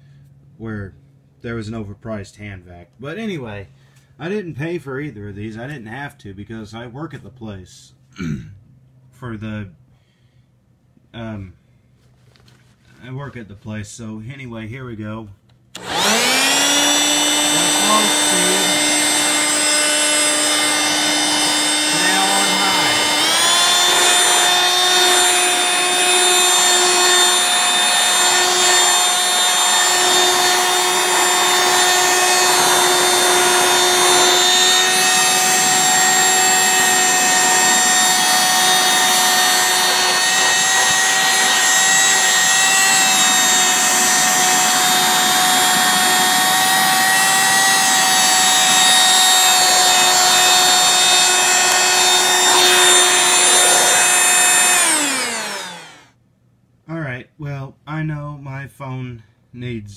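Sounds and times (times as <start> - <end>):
hand vacuum motor whine: 15.8 - 56.1.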